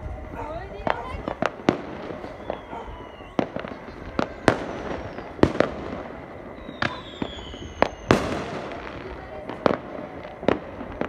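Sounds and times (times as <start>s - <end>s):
fireworks bangs: 0.0s - 11.0s
firework whistles falling in pitch: 1.4s - 11.0s.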